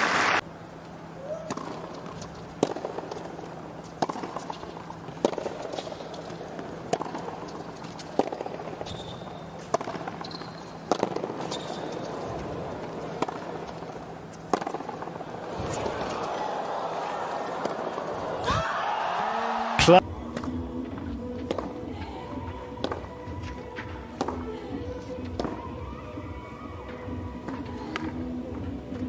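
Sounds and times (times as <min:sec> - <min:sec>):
tennis ball hit with rackets: 0:01.4 - 0:16.4, 0:21.4 - 0:21.8, 0:22.8 - 0:23.6, 0:24.2 - 0:24.4.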